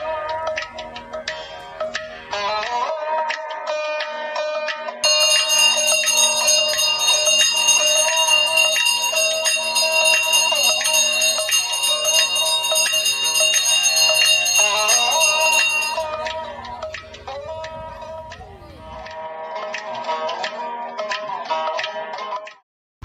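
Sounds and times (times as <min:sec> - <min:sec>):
temple bells ringing: 0:05.0 - 0:19.0.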